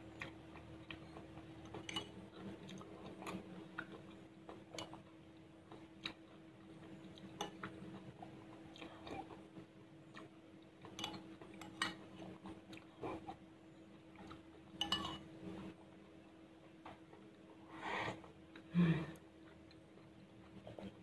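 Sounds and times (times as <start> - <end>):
faint steady hum: 0.0 - 21.0
soft chewing: 0.0 - 21.0
metal spoon clinking on ceramic bowl: 14.8 - 15.2.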